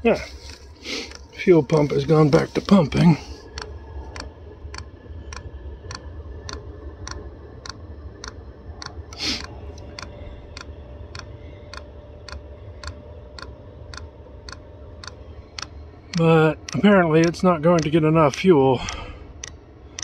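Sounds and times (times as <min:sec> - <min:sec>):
low hum: 0:00.0 - 0:20.0
fuel pump clicking: 0:08.8 - 0:20.0
short breathy hiss: 0:09.1 - 0:09.5.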